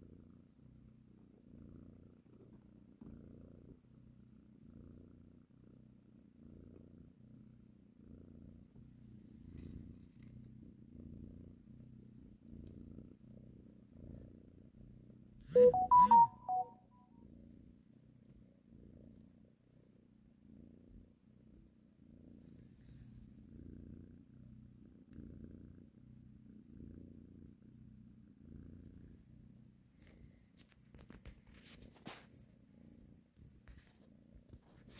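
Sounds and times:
cat purring: 0.0 - 34.9
short loud tones: 15.5 - 16.7.

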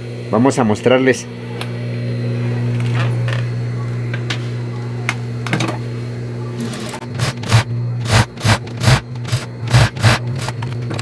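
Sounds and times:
motor hum: 0.0 - 11.0
sewing machine stitching: 6.7 - 10.5.

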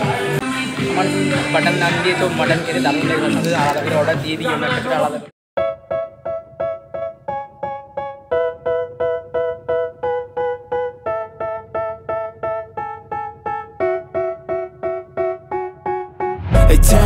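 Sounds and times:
keyboard playing repeated chords: 5.6 - 17.0.

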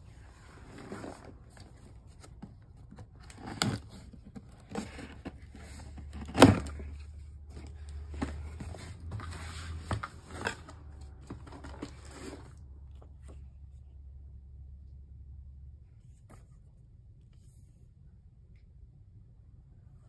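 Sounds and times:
cardboard scraping and rustling: 0.0 - 13.5.

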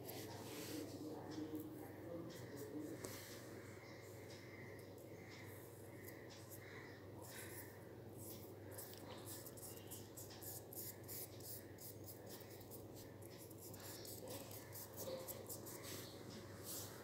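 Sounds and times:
pencil scratching on paper: 7.2 - 17.0.

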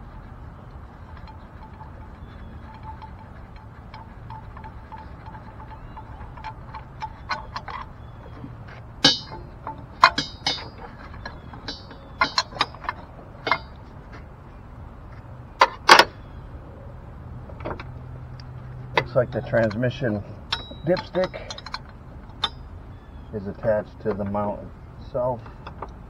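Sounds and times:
ringing metal clanks: 0.6 - 13.9, 18.6 - 26.0
tools clinking against metal: 1.1 - 13.8, 19.0 - 22.7.

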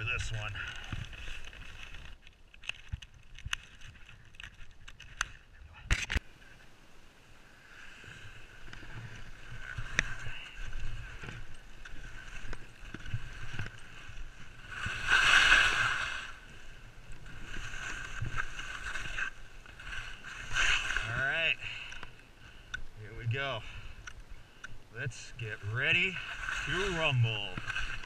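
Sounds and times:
skis scraping on snow: 7.5 - 21.8, 25.1 - 28.0.

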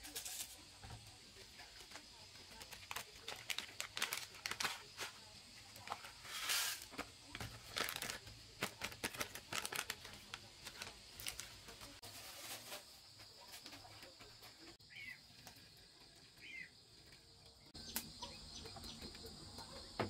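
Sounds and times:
foil packets crinkling and tearing: 1.4 - 13.0.

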